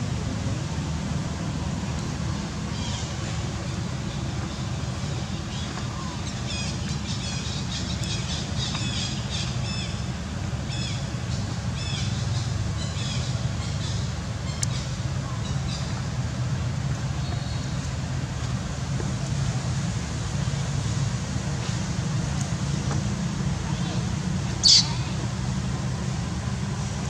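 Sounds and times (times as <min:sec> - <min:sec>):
squeaky animal chirps: 0:24.6 - 0:25.0.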